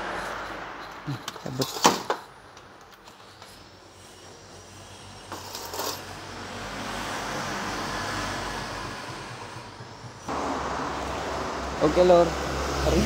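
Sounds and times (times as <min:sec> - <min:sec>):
road vehicle rumbling by: 0:06.1 - 0:13.0.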